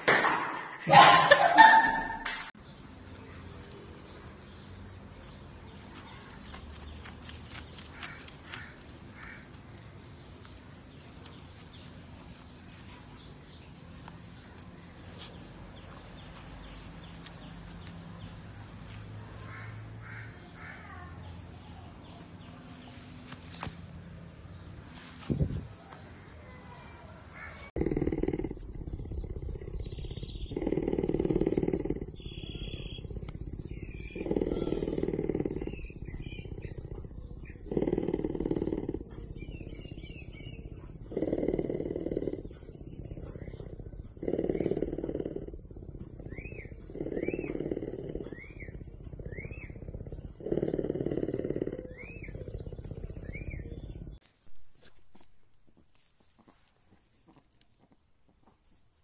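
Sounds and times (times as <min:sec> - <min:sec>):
big cat purring: 0:02.8 - 0:59.0
dog digging dirt scrapes: 0:05.5 - 0:09.7.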